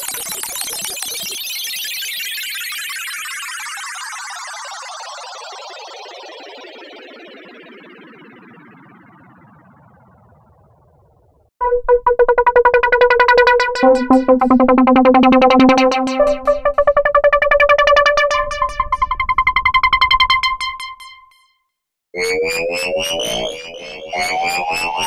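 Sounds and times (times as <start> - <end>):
lower synthesizer tone: 11.6 - 21.2, 22.3 - 25.0
rising siren-like synth tone: 11.6 - 21.2, 22.2 - 25.0
pulsing synthesizer tone: 11.6 - 21.3, 22.2 - 25.0.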